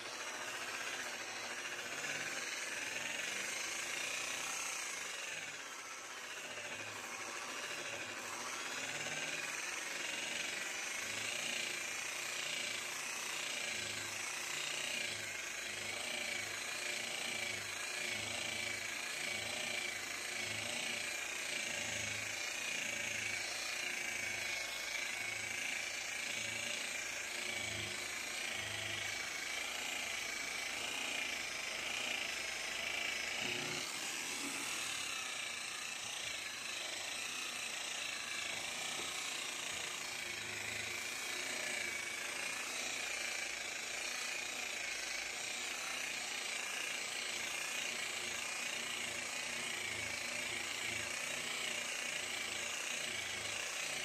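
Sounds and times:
polisher motor whine: 0.0 - 54.0.

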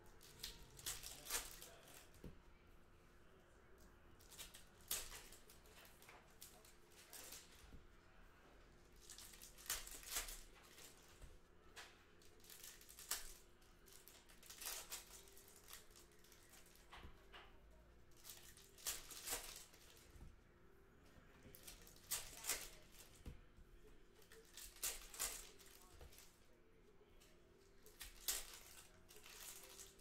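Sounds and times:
wrapper crinkling: 0.0 - 2.2, 4.2 - 7.7, 9.0 - 11.2, 12.2 - 17.0, 18.1 - 20.2, 21.4 - 23.2, 24.2 - 26.4, 27.6 - 30.0.

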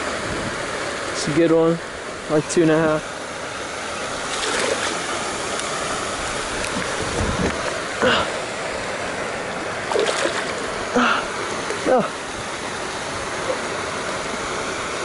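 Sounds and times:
rushing water: 0.0 - 15.0
wind: 0.0 - 15.0
fish splashing: 4.2 - 7.0, 9.5 - 11.8.

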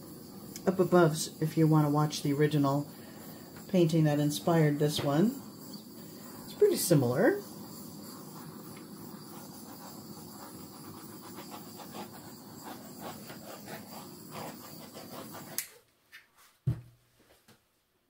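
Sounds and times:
butane torch flame hissing: 0.0 - 15.8
torch click: 15.4 - 15.8
soft knock: 16.7 - 16.9.

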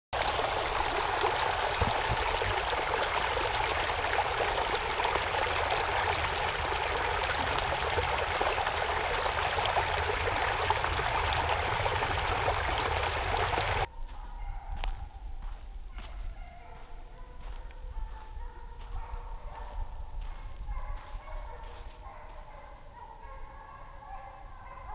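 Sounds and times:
stream trickling over rocks: 0.2 - 13.9.

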